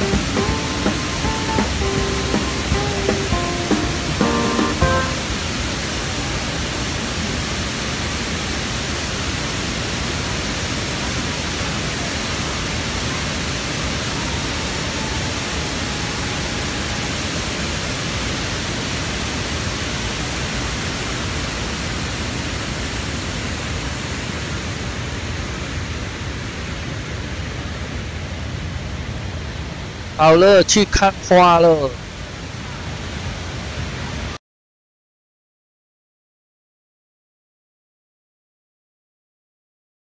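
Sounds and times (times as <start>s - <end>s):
waterfall rushing: 0.0s - 34.4s.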